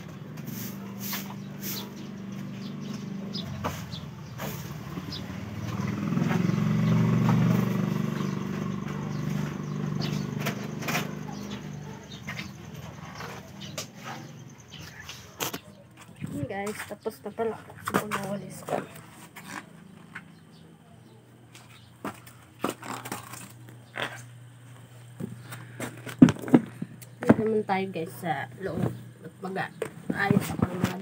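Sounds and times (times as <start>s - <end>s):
vehicle engine running: 0.0s - 31.0s.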